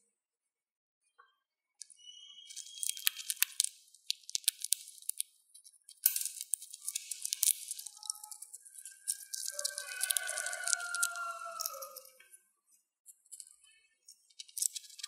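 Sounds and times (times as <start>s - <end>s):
hamster cracking seed husks: 2.5s - 12.3s, 13.1s - 15.0s.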